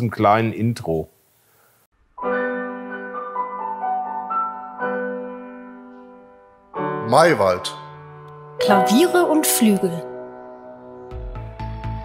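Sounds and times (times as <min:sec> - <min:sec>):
piano jingle: 0:08.5 - 0:11.6.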